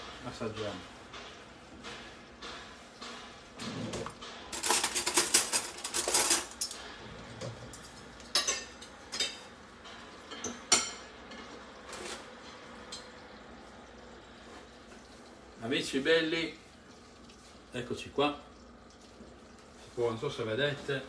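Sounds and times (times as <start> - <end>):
cutlery and plates clattering: 3.6 - 9.5.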